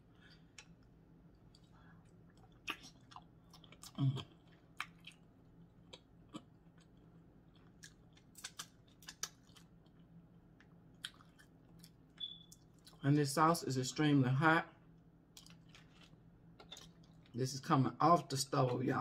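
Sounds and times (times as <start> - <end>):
person chewing: 0.1 - 13.0, 15.3 - 17.4
wet mouth clicks and smacks: 2.5 - 3.3, 7.8 - 9.7.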